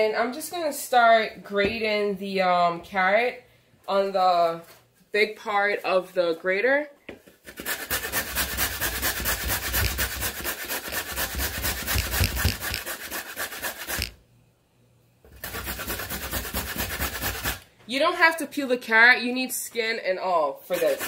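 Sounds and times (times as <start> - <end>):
carrot being grated: 7.4 - 14.2, 15.3 - 17.6, 20.7 - 21.0.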